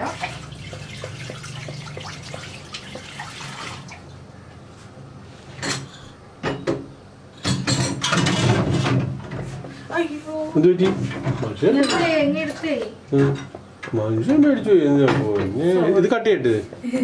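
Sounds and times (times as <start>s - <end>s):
spatula stirring liquid in a pot: 0.0s - 3.5s.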